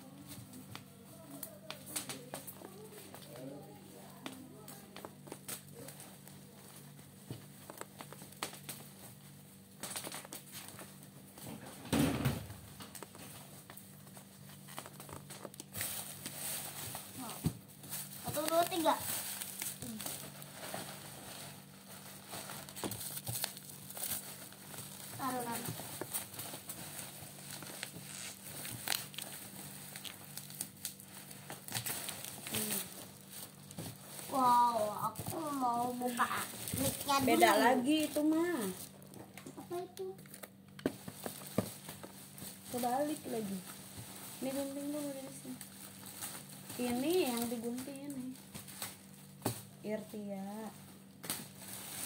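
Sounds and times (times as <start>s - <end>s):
packaging crinkling: 12.6s - 52.0s.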